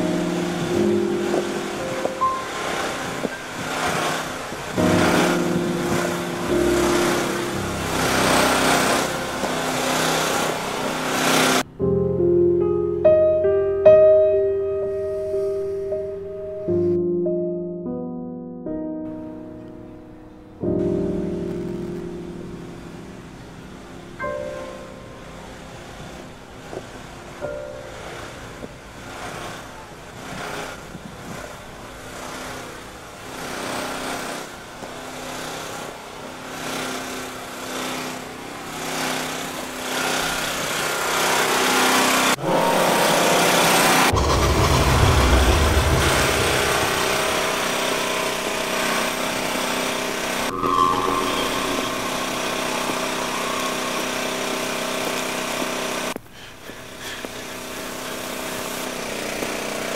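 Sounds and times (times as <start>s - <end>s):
machinery engine drone: 0.0s - 12.8s, 20.2s - 59.9s
heavy low rumble: 43.6s - 48.9s.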